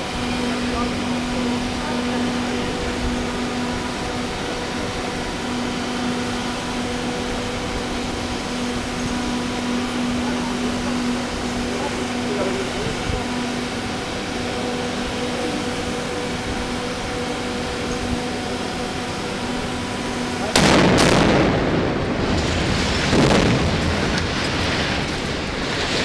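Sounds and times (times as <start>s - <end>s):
steady hum: 0.0s - 26.0s
explosive blasts: 20.5s - 26.0s
building collapsing rumble: 20.6s - 26.0s.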